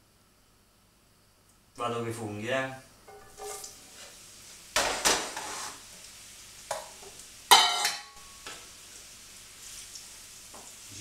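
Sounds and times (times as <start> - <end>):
mushrooms sizzling in oil: 3.0 - 11.0.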